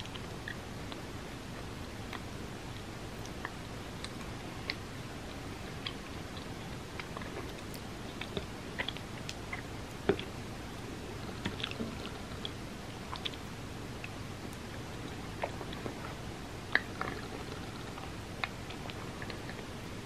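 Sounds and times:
wet chewing: 5.7s - 10.3s, 11.2s - 19.7s.

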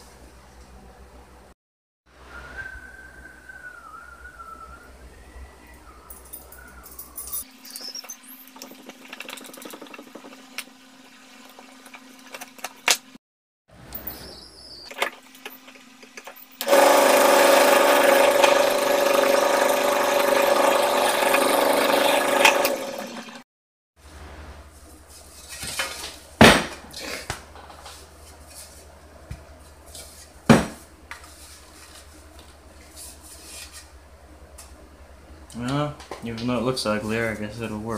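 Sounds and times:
drill press drilling metal: 16.6s - 23.3s.

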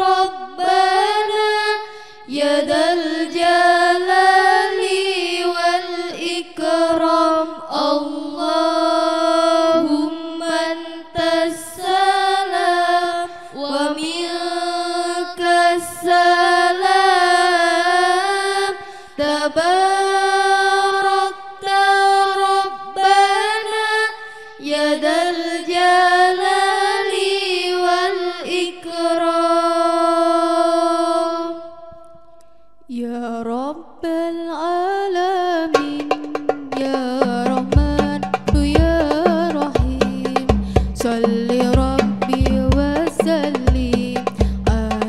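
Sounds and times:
women singing unaccompanied: 0.0s - 45.0s
hand-struck frame drums: 35.8s - 45.0s.

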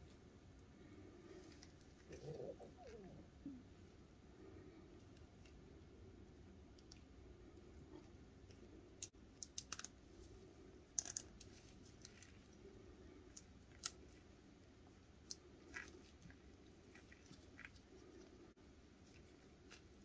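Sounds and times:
faint room noise: 0.0s - 20.0s
plastic puzzle pieces clicking: 9.0s - 10.0s, 10.9s - 11.6s.

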